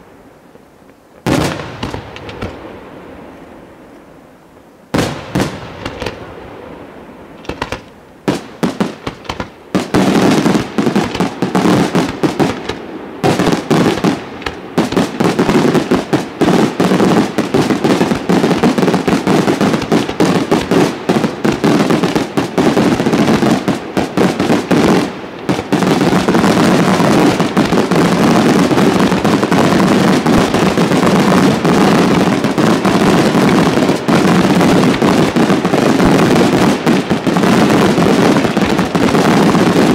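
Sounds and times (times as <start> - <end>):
firework shells bursting: 7.4 - 24.8.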